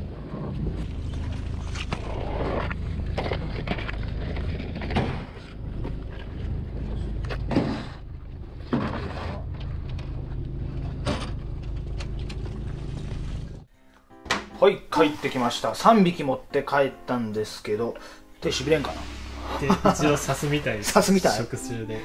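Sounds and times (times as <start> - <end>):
boat engine humming: 0.6 - 13.7, 18.5 - 22.0.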